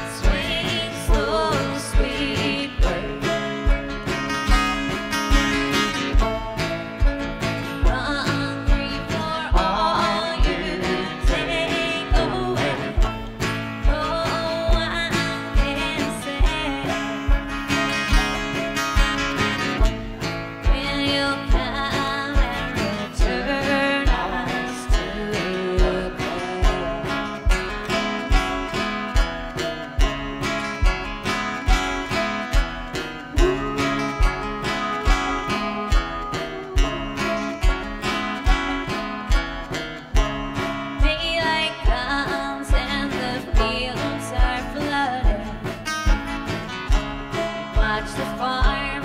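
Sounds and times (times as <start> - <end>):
person singing: 0.0 - 4.2, 7.7 - 17.6, 20.6 - 28.2, 33.2 - 39.2, 40.6 - 45.9, 47.3 - 49.0
acoustic guitar: 0.0 - 49.0
banjo: 0.0 - 49.0.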